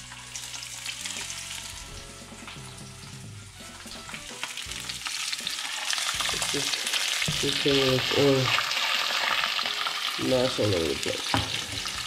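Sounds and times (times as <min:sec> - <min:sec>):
background music: 0:00.0 - 0:12.0
fish sizzling in frying pan: 0:00.0 - 0:12.0.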